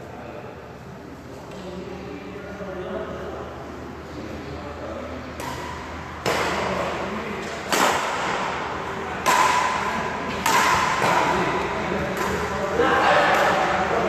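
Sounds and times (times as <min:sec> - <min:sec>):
racket striking shuttlecock: 0:05.4 - 0:13.8.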